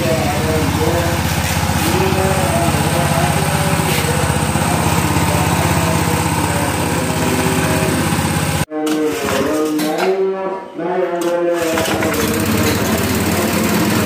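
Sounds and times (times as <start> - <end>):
small petrol engine idling: 0.0 - 8.7, 11.7 - 14.0.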